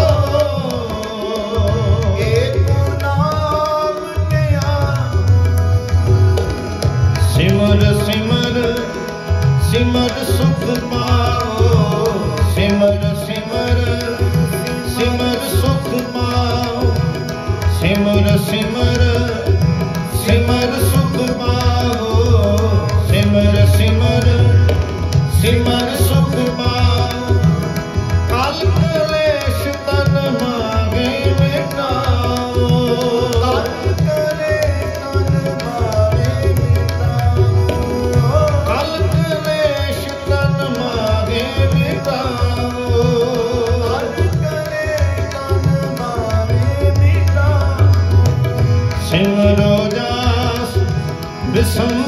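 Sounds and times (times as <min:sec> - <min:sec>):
harmoniums playing: 0:00.0 - 0:52.0
tabla rhythm: 0:00.0 - 0:52.0.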